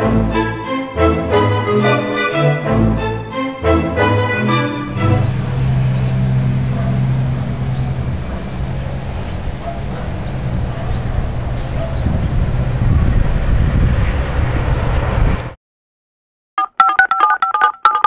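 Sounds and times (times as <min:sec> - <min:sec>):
traffic on busy road: 0:05.3 - 0:15.4.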